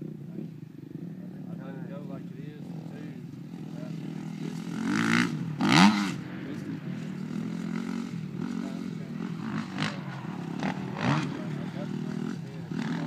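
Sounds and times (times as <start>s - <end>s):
dirt bike engine revving: 2.6s - 13.0s.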